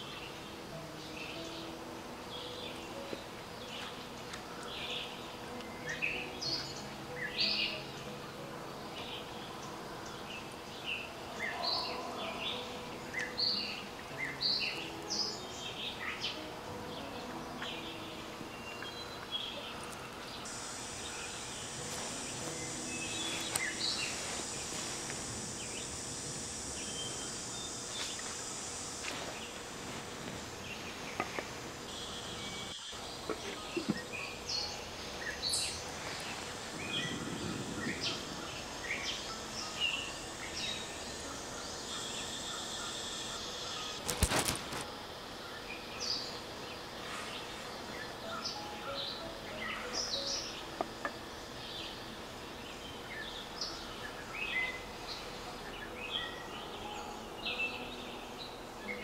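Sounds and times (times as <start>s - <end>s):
bird chirps: 0.0s - 29.6s
high insect drone: 0.0s - 59.0s.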